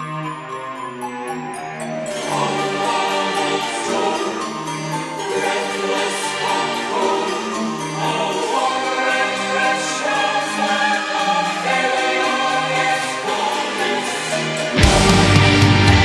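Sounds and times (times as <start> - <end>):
choir-like voices singing: 1.3 - 16.0
symphonic black metal music: 9.2 - 16.0.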